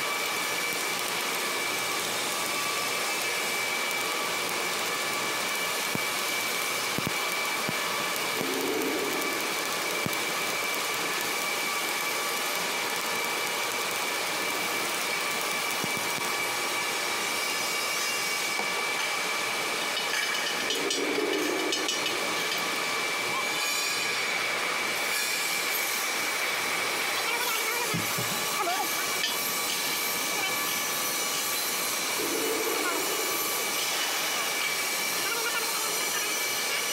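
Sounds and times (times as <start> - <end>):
high-pitched whine: 8.2 - 10.5, 20.6 - 24.0, 29.0 - 35.4
machinery hiss: 8.3 - 10.6, 29.4 - 35.2
brief low drone: 8.4 - 9.7.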